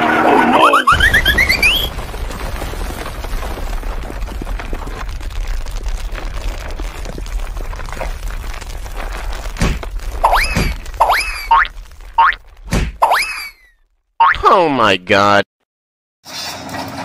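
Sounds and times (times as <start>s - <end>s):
rising whistle glide: 0.6s - 1.9s
low rumble with crackling: 1.0s - 13.0s.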